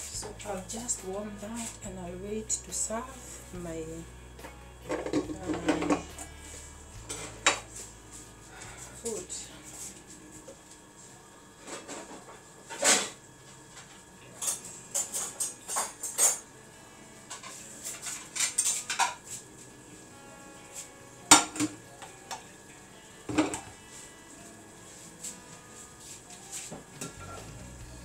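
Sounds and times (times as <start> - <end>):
dishes and pots clinking: 4.9 - 6.3, 7.1 - 7.7, 13.8 - 16.5, 17.3 - 19.3, 21.3 - 22.4, 23.3 - 23.7.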